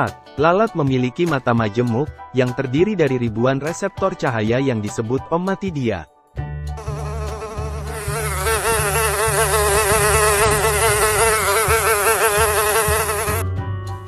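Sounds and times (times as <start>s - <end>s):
music: 0.0s - 14.0s
fly buzzing: 6.8s - 13.4s.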